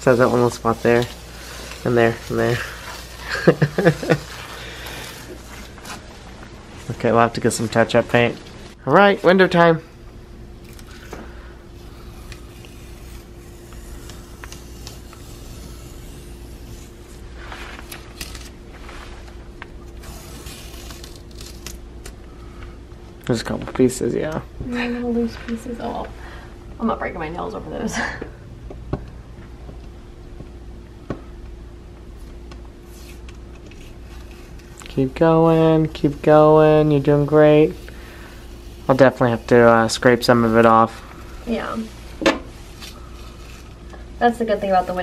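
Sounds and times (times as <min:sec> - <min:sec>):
tape peeling crackle: 0:00.0 - 0:06.6, 0:11.9 - 0:22.3, 0:32.2 - 0:35.2, 0:35.8 - 0:44.0
low room hum: 0:00.0 - 0:45.0.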